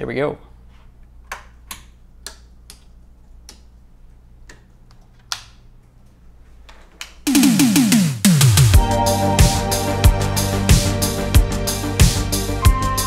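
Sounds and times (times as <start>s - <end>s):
loud electronic music: 7.3s - 13.0s.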